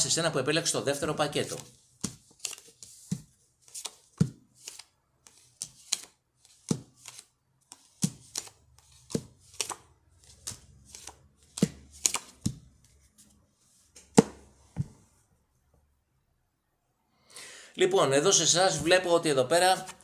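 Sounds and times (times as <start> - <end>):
cards flipped onto table: 10.4 - 12.6.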